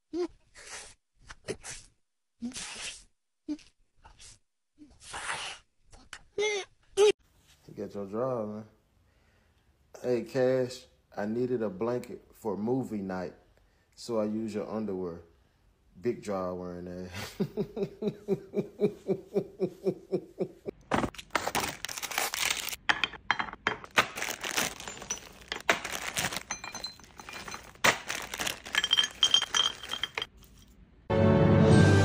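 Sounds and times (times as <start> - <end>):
person laughing: 17.2 - 20.8
bag crinkling: 21.1 - 22.8, 23.9 - 30.6
candies clattering into ceramic dishes: 21.4 - 30.8.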